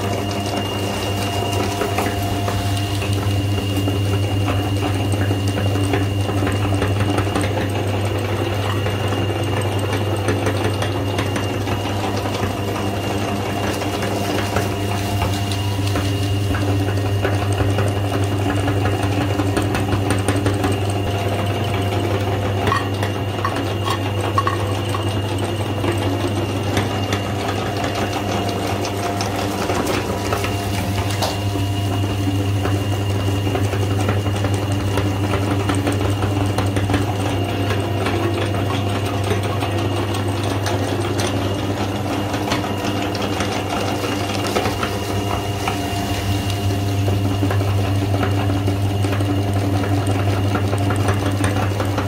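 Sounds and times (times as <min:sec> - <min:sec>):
meat grinder motor humming: 0:00.0 - 0:52.0.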